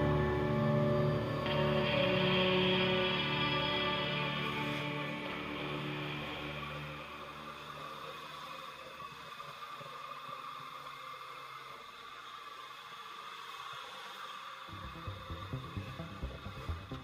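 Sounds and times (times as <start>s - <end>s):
background music: 0.0s - 7.5s, 14.7s - 17.0s.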